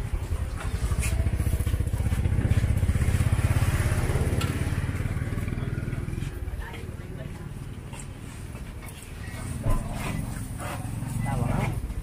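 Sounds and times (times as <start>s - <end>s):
small motorcycle engine running: 0.0s - 7.0s.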